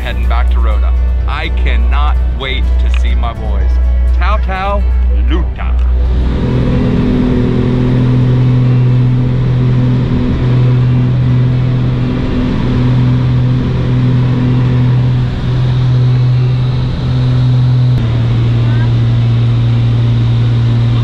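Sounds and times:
propeller plane engines droning: 0:00.0 - 0:21.0.

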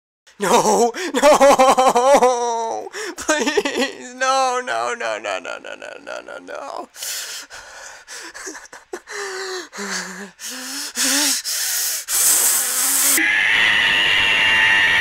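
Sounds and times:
man gasping and whimpering: 0:00.3 - 0:01.2, 0:02.4 - 0:03.4, 0:05.8 - 0:13.2
loud hissing breath: 0:07.0 - 0:08.4, 0:09.1 - 0:13.2.

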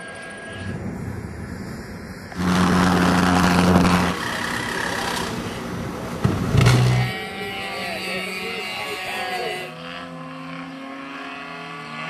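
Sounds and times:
rushing noise: 0:00.0 - 0:07.6
engine hum: 0:00.0 - 0:12.0.

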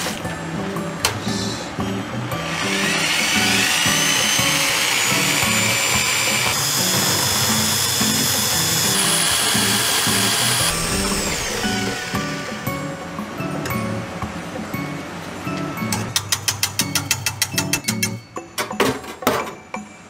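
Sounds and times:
background music with steady beat: 0:00.0 - 0:20.0
immersion blender motor whining: 0:02.4 - 0:12.9.

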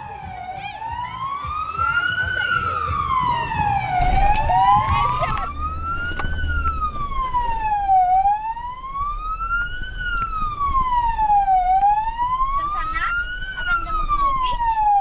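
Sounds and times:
vehicle siren wailing: 0:00.0 - 0:15.0
low rumble: 0:01.6 - 0:14.9.

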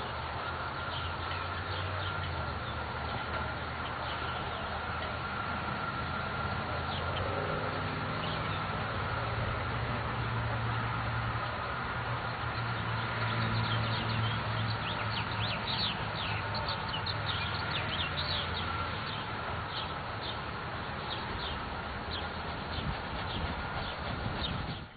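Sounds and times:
small birds chirping: 0:12.3 - 0:24.9.

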